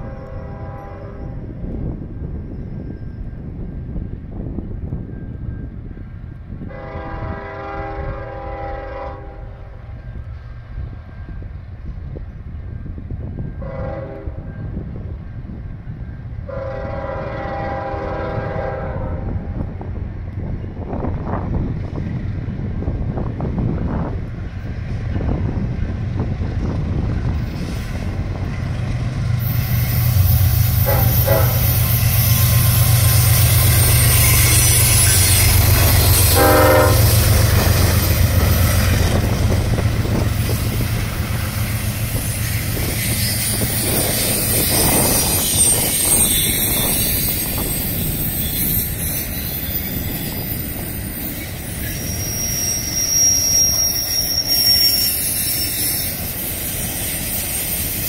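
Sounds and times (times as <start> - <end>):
train horn: 0.0 - 1.5, 6.6 - 9.9, 13.6 - 14.7, 16.4 - 19.7, 29.4 - 47.7
diesel locomotives rumbling: 0.0 - 58.0
high wheel squeal: 27.2 - 58.0.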